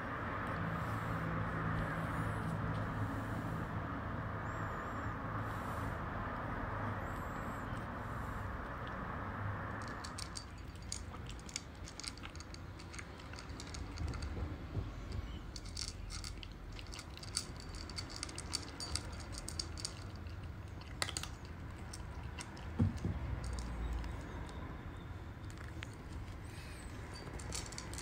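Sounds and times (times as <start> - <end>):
cat crunching dry kibble: 9.8 - 14.6, 15.4 - 24.4, 25.4 - 28.0.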